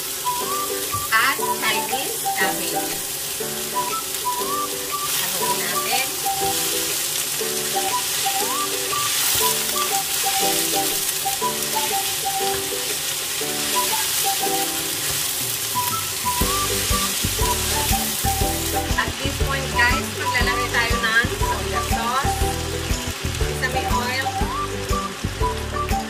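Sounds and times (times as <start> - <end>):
background music: 0.0 - 26.0
vegetables sizzling in oil: 0.0 - 26.0
bass beat: 16.4 - 26.0.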